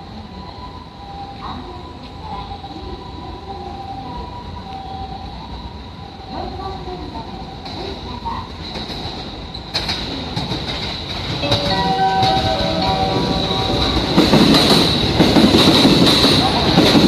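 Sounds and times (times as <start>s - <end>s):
pitched train whine: 0.0s - 9.8s, 10.4s - 17.0s
train rumble: 0.0s - 17.0s
train wheels clattering: 7.6s - 17.0s.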